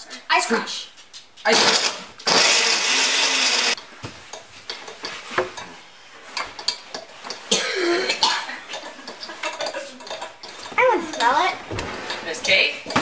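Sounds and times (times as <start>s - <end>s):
blender running: 1.5s - 3.8s.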